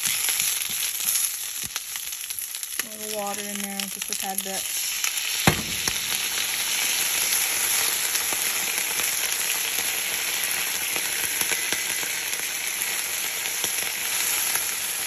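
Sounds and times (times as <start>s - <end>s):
leaves sizzling in frying pan: 0.0s - 15.0s
sharp knock: 5.5s - 6.2s.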